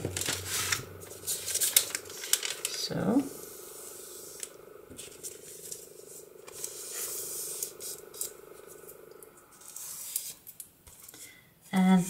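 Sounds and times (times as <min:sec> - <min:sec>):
paper rustling and sliding: 0:00.0 - 0:08.9, 0:09.5 - 0:11.2
faint steady hum: 0:00.0 - 0:12.0.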